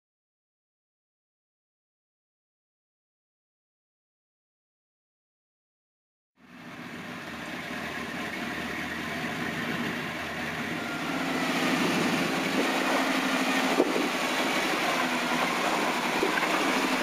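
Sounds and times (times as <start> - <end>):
truck engine running: 6.4 - 17.0.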